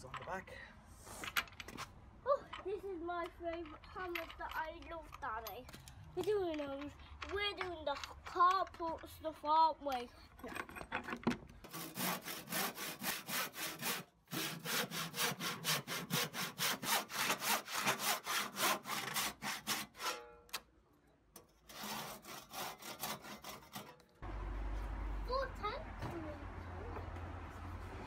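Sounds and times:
hand saw cutting timber: 11.6s - 20.3s, 21.6s - 24.2s.

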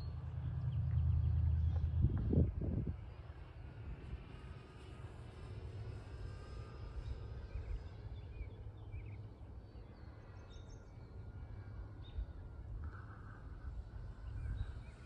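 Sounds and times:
wind rumble on microphone: 0.0s - 8.5s, 11.9s - 15.0s
distant model airplane motor whine: 0.0s - 15.0s.

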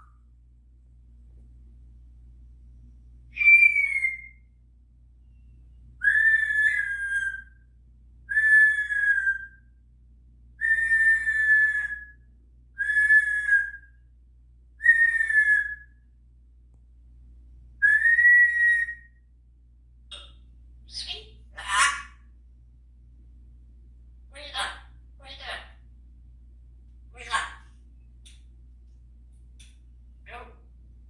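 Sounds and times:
parrot whistling calls: 3.3s - 4.5s, 6.0s - 7.6s, 8.3s - 9.6s, 10.6s - 12.2s, 12.8s - 13.9s, 14.8s - 15.9s, 17.8s - 19.2s, 20.9s - 22.2s.

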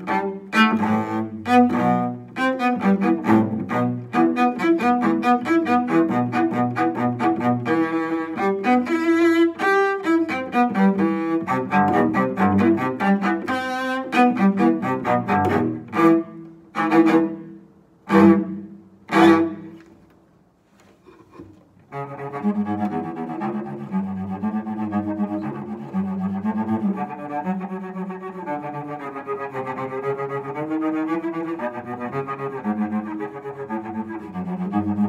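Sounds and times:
bowed cello: 0.0s - 20.1s, 20.9s - 35.0s.

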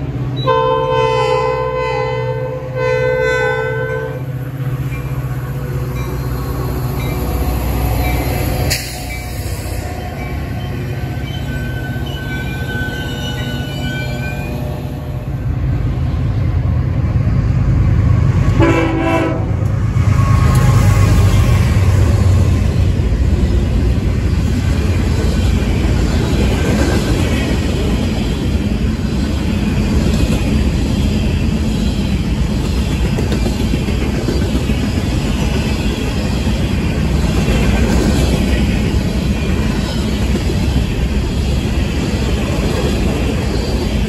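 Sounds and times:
freight train rumbling: 0.0s - 44.0s
train horn blast: 0.4s - 4.3s, 18.5s - 21.4s.

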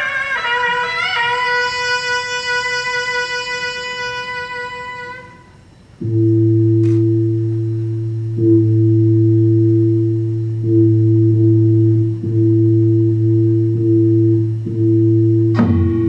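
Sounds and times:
reedy wind instrument note: 0.0s - 16.0s
low gong tone: 6.0s - 16.0s.

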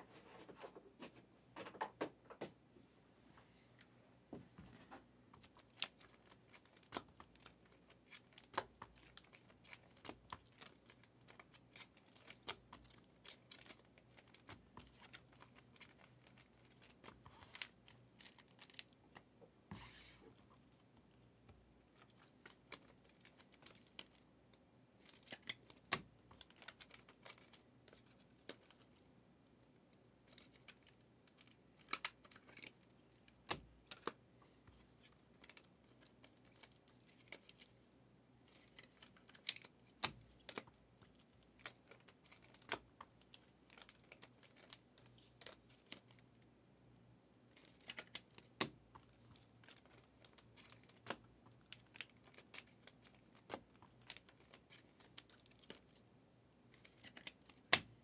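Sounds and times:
cards clicking and tapping: 56.8s - 58.0s.

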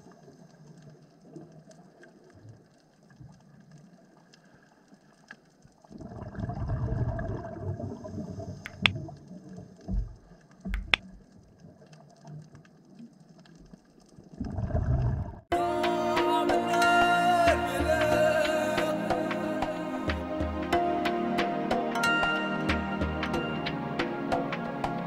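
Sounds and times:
low underwater rumble: 5.8s - 15.5s
sharp clicks: 8.7s - 9.0s, 10.7s - 11.2s
music: 15.5s - 25.0s.

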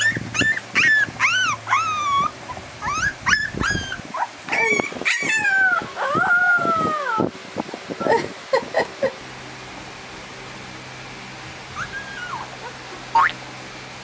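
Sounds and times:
puppies whimpering and yipping: 0.0s - 7.3s, 11.7s - 13.4s
puppy howl-like cries: 0.0s - 7.3s, 11.8s - 13.4s.

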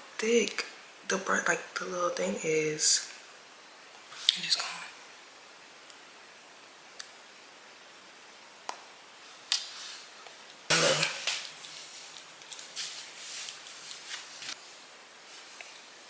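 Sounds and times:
fabric rustling: 11.1s - 16.0s.

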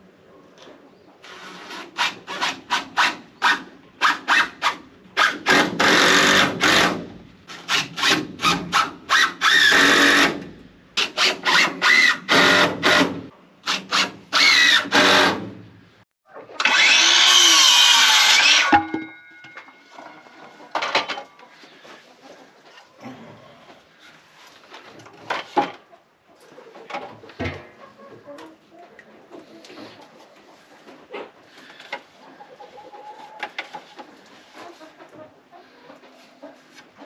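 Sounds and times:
power drill driving screws: 5.2s - 7.0s, 9.4s - 10.4s, 11.1s - 15.5s, 16.6s - 18.8s
circular saw cutting board: 16.6s - 20.7s.

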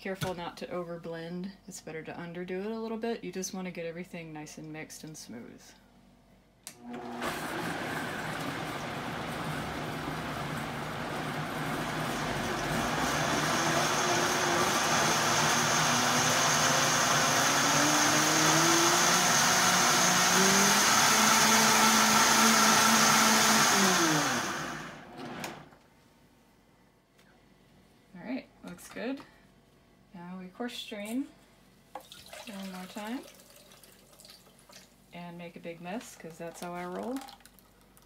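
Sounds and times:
blender motor running: 6.8s - 25.6s.

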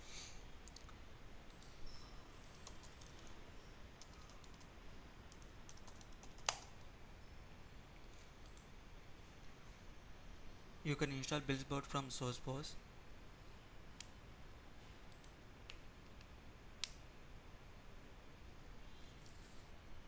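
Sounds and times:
faint keyboard typing: 0.6s - 7.0s, 8.0s - 8.8s, 14.9s - 17.0s.

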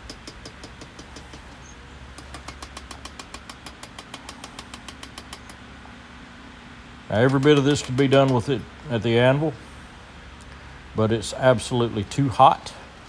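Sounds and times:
fan humming: 0.0s - 13.0s
power hammer striking steel: 7.2s - 8.5s.

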